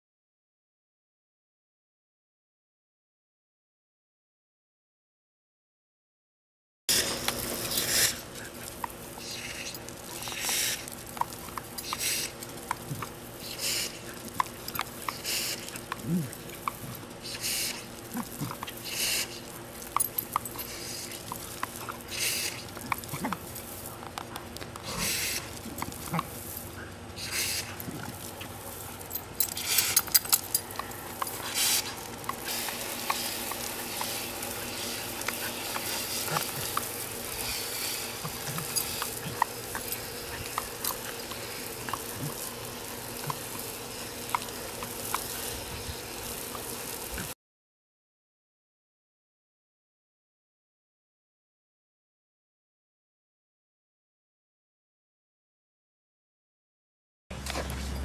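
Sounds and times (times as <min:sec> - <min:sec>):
hose spraying water onto gravel: 0:06.9 - 0:47.4.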